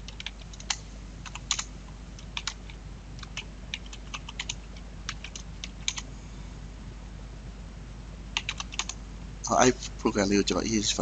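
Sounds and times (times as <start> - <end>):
typing on a computer keyboard: 0.0 - 6.0, 8.4 - 9.0.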